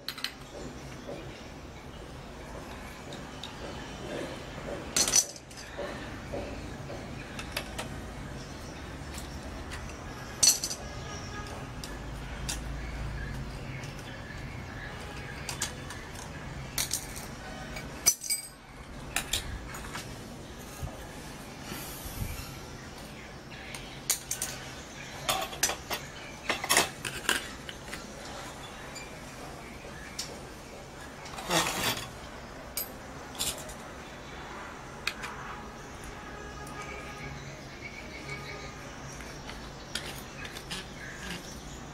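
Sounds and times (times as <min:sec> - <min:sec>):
spanner clinking on metal: 0:04.9 - 0:06.4, 0:09.1 - 0:11.4, 0:15.2 - 0:20.0.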